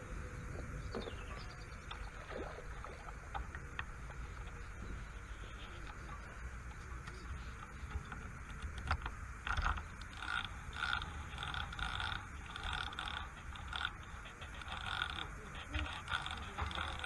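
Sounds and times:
fishing reel gears whirring: 0:03.9 - 0:17.0.

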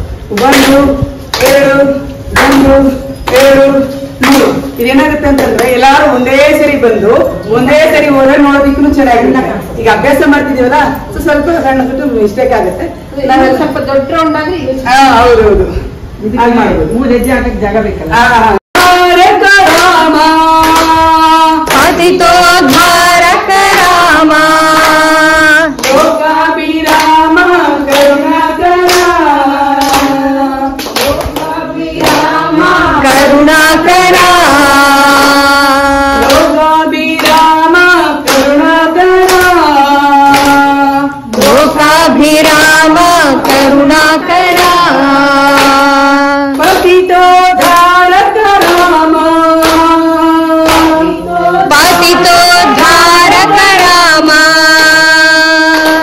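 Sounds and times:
devotional singing: 0:00.0 - 0:09.2, 0:18.2 - 0:56.0
hands clapping in time: 0:48.6 - 0:51.1.

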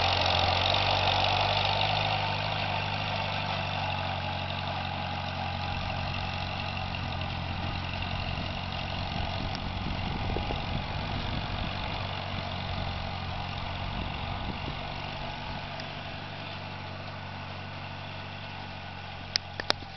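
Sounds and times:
tractor engine running: 0:00.0 - 0:19.9.

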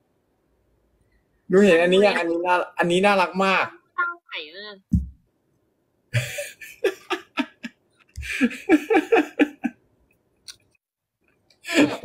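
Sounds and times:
person laughing: 0:06.2 - 0:09.7, 0:11.7 - 0:12.0.

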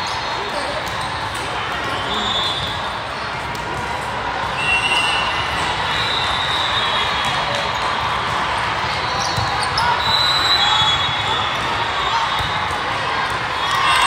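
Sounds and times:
many voices: 0:00.0 - 0:14.0
volleyball hits: 0:00.8 - 0:14.0
high squeals: 0:08.9 - 0:12.5.

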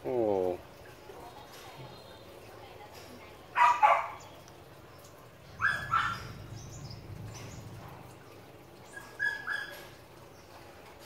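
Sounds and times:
dog barking: 0:03.6 - 0:04.2, 0:05.6 - 0:06.4.

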